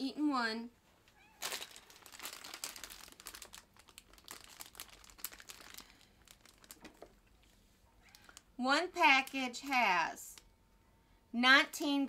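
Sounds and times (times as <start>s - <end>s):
plastic packaging crinkling: 1.2s - 8.5s.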